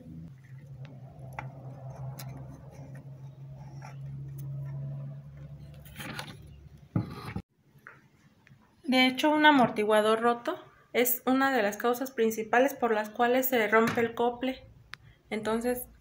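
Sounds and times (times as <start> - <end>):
fingers clicking and scraping: 0.4 - 7.4.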